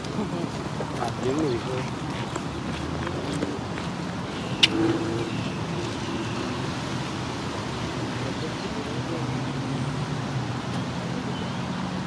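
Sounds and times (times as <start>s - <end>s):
distant road traffic rumble: 0.0s - 12.0s.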